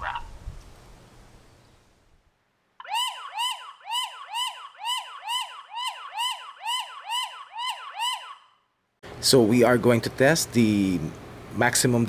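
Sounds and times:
siren wailing: 2.8 - 8.7.

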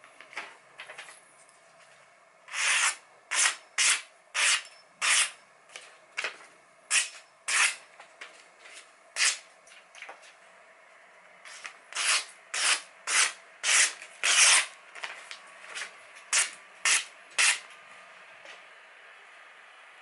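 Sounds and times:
knife slicing paper: 2.5 - 5.4, 6.9 - 7.8, 9.2 - 9.4, 11.5 - 14.7.

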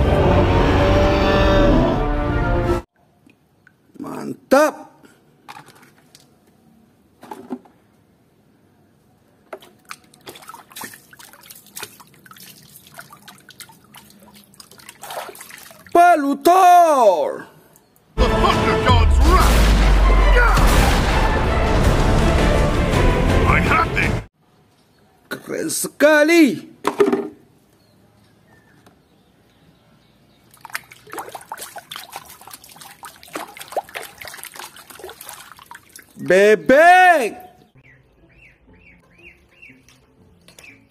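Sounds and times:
water splashing in plastic tub: 9.5 - 16.0, 30.4 - 36.2
plastic toys knocking: 26.8 - 27.4.

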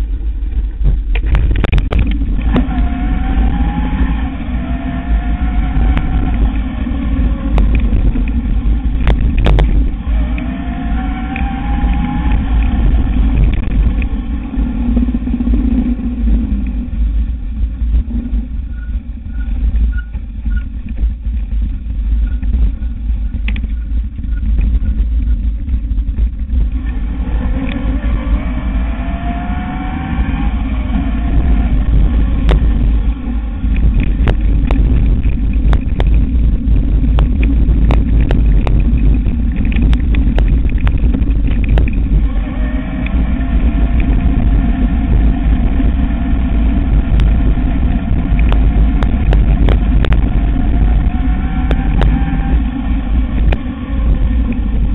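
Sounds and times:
bike rattles and knocks: 0.0 - 2.8, 7.4 - 10.0, 16.6 - 26.9, 31.7 - 42.3
low rumble of wind and vibration: 0.0 - 54.9
electric motor whine: 1.2 - 17.0, 26.6 - 54.9.

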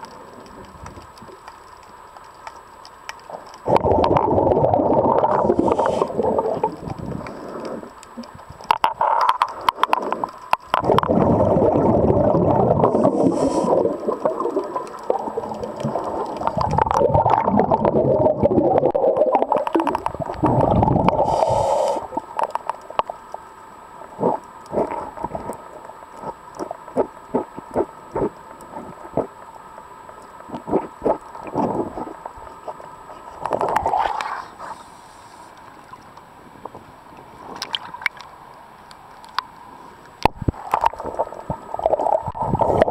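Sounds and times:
muffled underwater rumbling: 3.3 - 22.4, 24.1 - 29.4, 30.4 - 32.4, 40.2 - 42.9.

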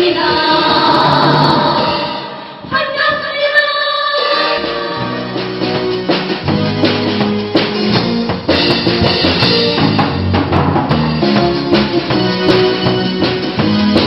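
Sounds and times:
drum kit playing: 5.0 - 14.0.

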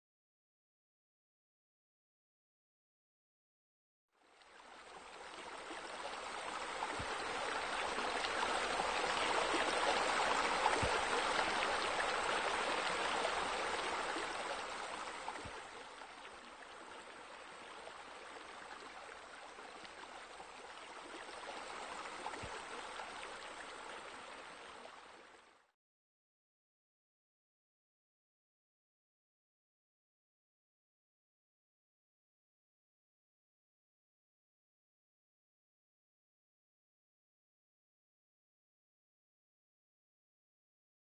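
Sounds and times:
rushing splashing water: 4.6 - 17.3.

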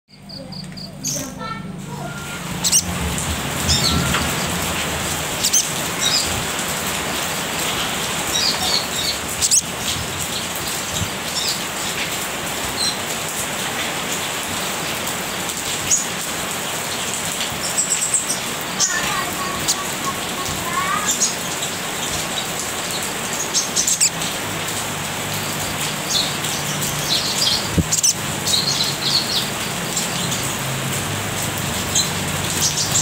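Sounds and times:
bird chirping sharply: 0.1 - 3.0.

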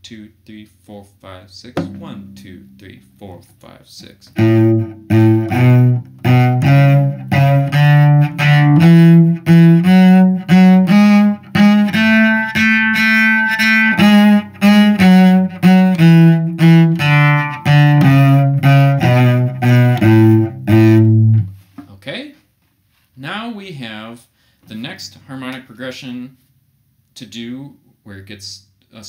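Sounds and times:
solo cello playing a scale: 1.8 - 3.0, 4.3 - 21.6.

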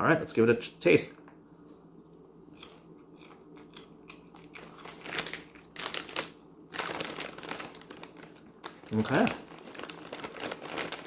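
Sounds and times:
chewing popcorn: 2.1 - 11.0
plastic snack bag crinkling: 3.4 - 11.0.

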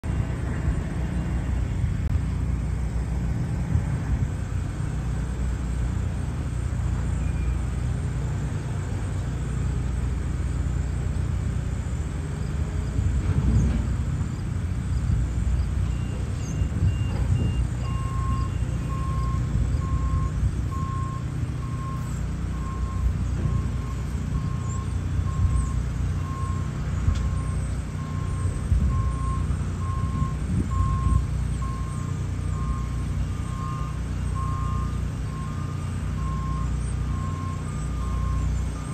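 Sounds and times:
diesel engine running under load: 0.0 - 38.9
backup alarm beeping: 15.8 - 38.9.

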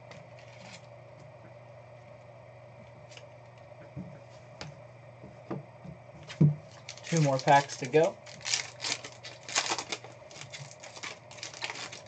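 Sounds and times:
low hum: 0.0 - 12.0
cards and foil packs clicking: 6.3 - 12.0.

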